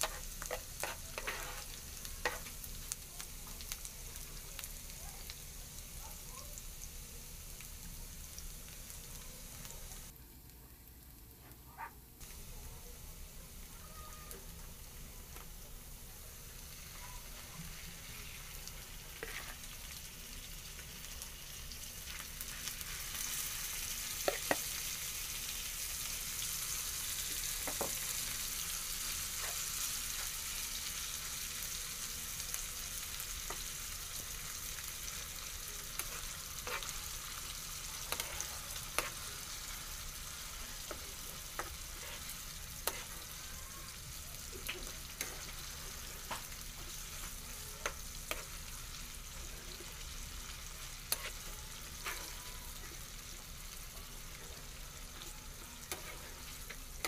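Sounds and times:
meat sizzling in hot oil: 0.0s - 10.2s, 12.2s - 57.0s.

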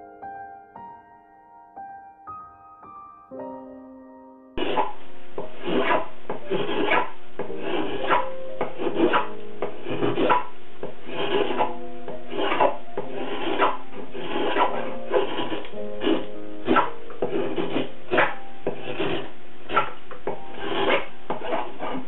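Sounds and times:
soft piano notes: 0.0s - 22.0s
carving blade scraping wood: 4.6s - 22.0s.

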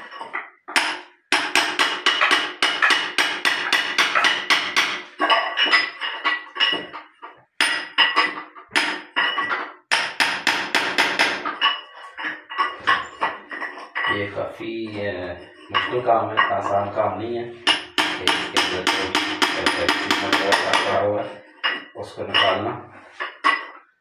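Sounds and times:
hammer striking steel chisel: 0.0s - 7.0s, 7.6s - 14.2s, 17.6s - 22.6s.

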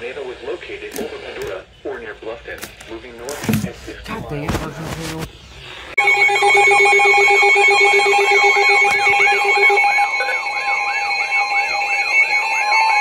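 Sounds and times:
fast rising alarm chirp: 6.0s - 13.0s.

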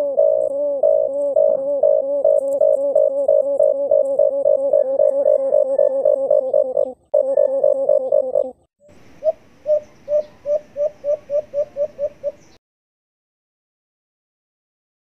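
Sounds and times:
dove cooing: 0.0s - 12.6s
recording hiss: 8.8s - 12.6s.

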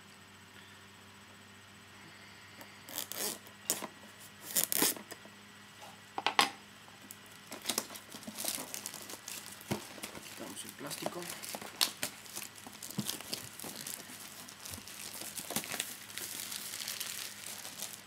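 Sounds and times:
plastic shrink-wrap tearing: 2.9s - 5.1s, 7.5s - 18.0s.

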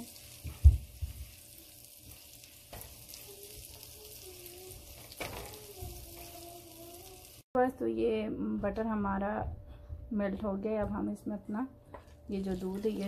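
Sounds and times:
spatula stirring: 0.0s - 6.6s
butter sizzling in a pan: 0.0s - 7.5s.

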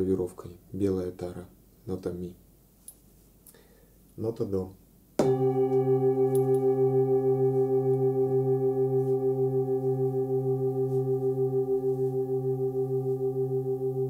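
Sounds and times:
soft mallet striking bowl: 5.2s - 13.4s
singing bowl ringing: 5.2s - 14.0s.

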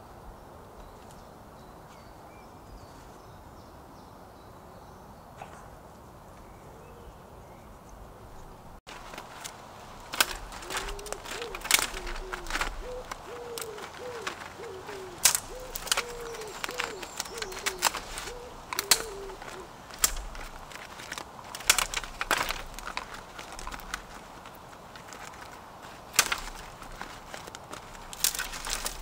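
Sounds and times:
sharp clicks and cracks: 8.9s - 29.0s
pigeon cooing: 10.4s - 20.4s.

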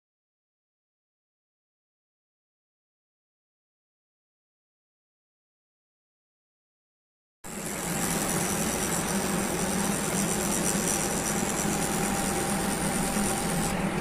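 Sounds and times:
tattoo machine buzzing: 7.5s - 14.0s.

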